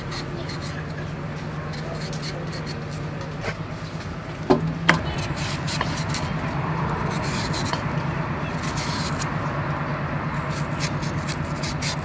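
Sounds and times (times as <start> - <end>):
knife shaving banana skin: 0.0 - 3.7, 10.3 - 12.0
steady low hum: 0.0 - 12.0
sharp knocks: 4.5 - 9.3.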